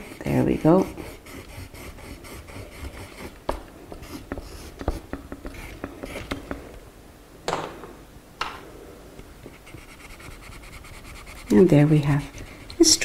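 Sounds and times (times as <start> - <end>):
crayon scratching on paper: 0.0 - 3.4, 4.0 - 6.4, 9.5 - 13.0.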